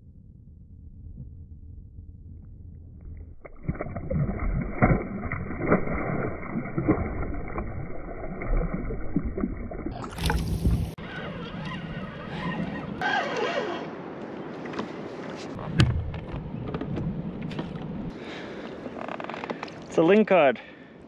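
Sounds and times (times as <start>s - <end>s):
water sloshing underwater: 0.9s - 11.0s.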